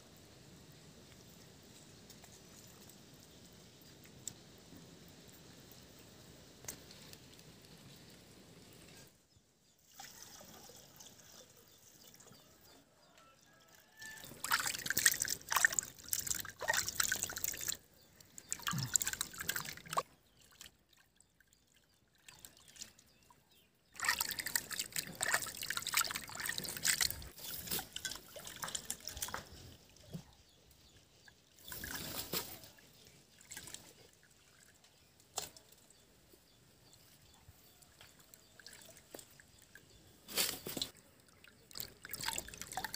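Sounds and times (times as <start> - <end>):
water splashing and sloshing: 13.7 - 36.0, 37.7 - 42.9.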